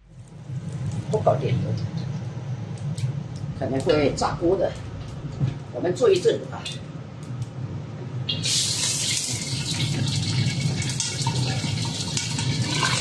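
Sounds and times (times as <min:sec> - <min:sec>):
fish sizzling in hot oil: 0:08.4 - 0:13.0.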